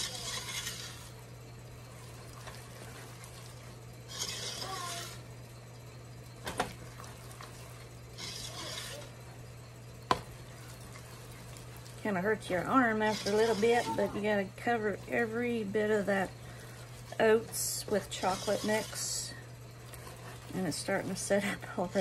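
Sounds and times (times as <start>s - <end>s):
spatula scraping a pot: 0.0s - 1.2s, 2.4s - 5.3s, 7.4s - 9.2s, 12.4s - 22.0s
steady low hum: 0.0s - 22.0s.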